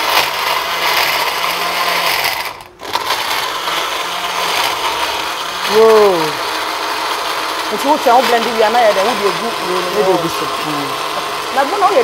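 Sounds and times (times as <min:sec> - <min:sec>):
electric blender running: 0:00.0 - 0:12.0
person exclaiming: 0:05.7 - 0:06.4.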